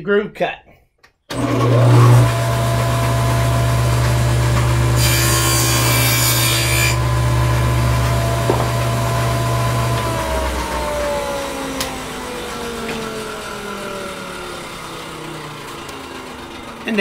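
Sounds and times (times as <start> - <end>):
saw motor winding down: 1.3 - 17.0
table saw cutting wood: 1.3 - 17.0.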